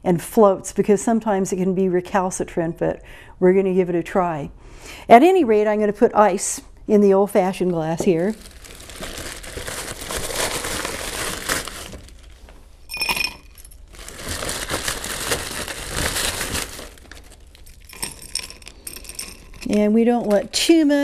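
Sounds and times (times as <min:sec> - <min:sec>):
ice cubes rattling: 0:08.1 - 0:12.3, 0:12.9 - 0:20.6
ringing glass clink: 0:12.9 - 0:13.7.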